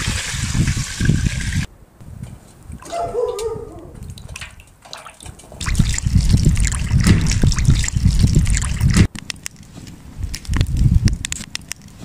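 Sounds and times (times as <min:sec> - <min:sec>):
rice sloshing in water: 0:04.0 - 0:09.1.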